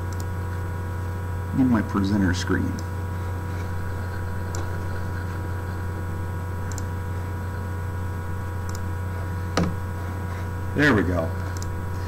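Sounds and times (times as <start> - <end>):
electrical mains hum: 0.0 - 12.0
faint short clicks: 6.7 - 6.9.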